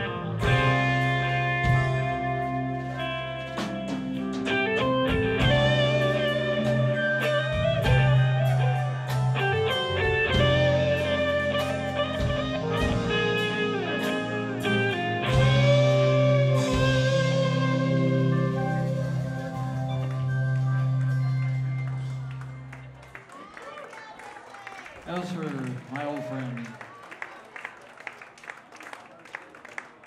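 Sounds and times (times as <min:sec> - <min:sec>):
drum kit: 0:00.0 - 0:22.8
bass guitar: 0:00.0 - 0:23.2
electric guitar lead: 0:00.0 - 0:23.2.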